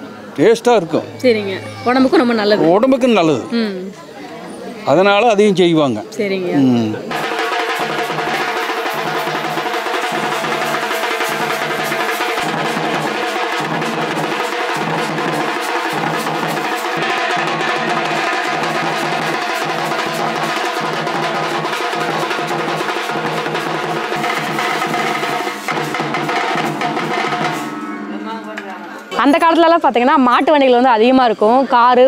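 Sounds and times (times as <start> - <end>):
side drums rattling: 7.0 - 31.2
large frame drums beaten: 7.1 - 30.2.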